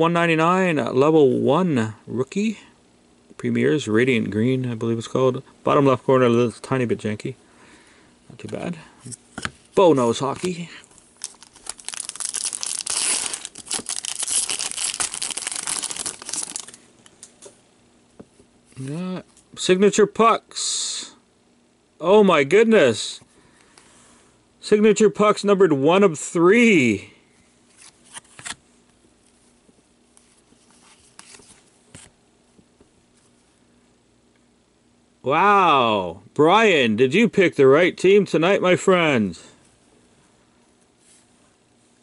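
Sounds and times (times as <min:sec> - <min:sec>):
faint steady hum: 0:00.0 - 0:42.0
foil wrapper tearing and crinkling: 0:11.2 - 0:16.8.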